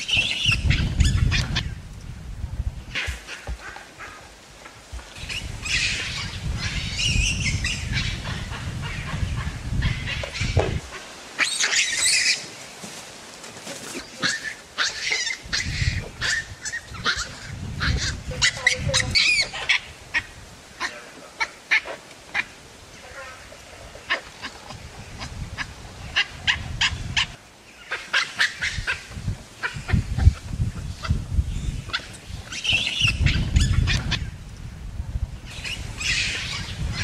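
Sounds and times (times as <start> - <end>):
baboons calling: 5.2 - 12.5, 13.9 - 31.2.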